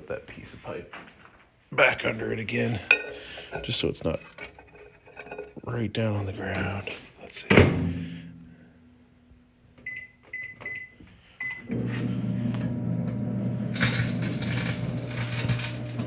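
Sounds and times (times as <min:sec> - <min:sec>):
microwave oven humming: 0:07.8 - 0:16.0
microwave keypad beeps: 0:09.8 - 0:11.7
cans sparking crackling hiss: 0:13.7 - 0:16.0.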